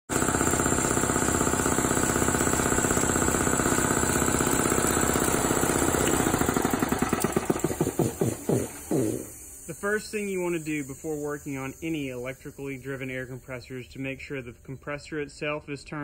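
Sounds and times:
air compressor knocking: 0.1 - 9.5.

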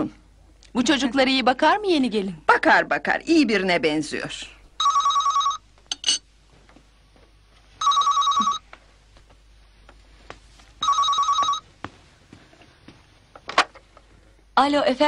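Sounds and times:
telephone ringing with warbling trill: 4.8 - 5.6, 7.8 - 8.6, 10.8 - 11.6.

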